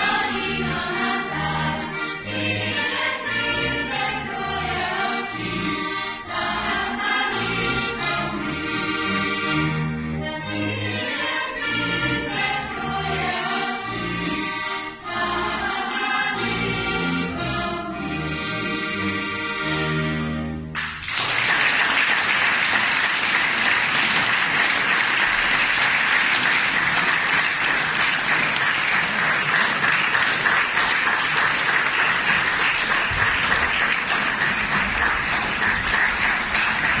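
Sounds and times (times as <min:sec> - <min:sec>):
choir singing chord: 0:00.0 - 0:08.6, 0:10.2 - 0:19.4
audience applause: 0:20.8 - 0:37.0.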